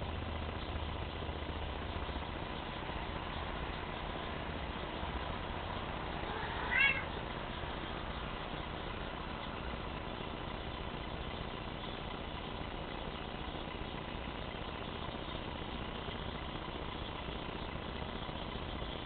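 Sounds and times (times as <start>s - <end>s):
cat meow: 6.2s - 7.2s.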